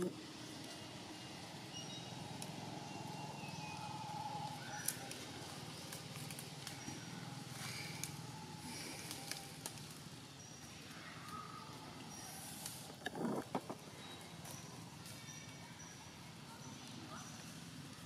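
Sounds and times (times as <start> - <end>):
dry leaves and twigs crackling: 0.0 - 15.6
faint high chirps: 1.1 - 6.0.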